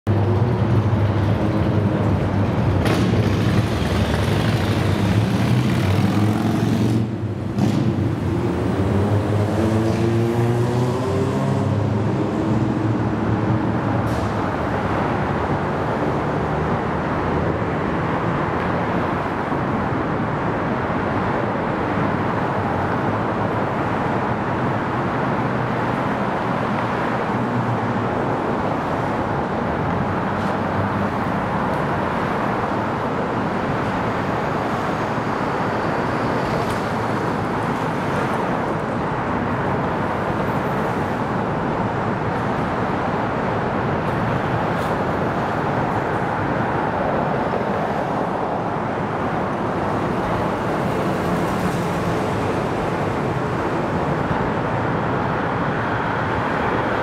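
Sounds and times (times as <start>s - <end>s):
road and tyre noise: 0.0s - 57.0s
vehicle engine passing: 0.4s - 14.4s.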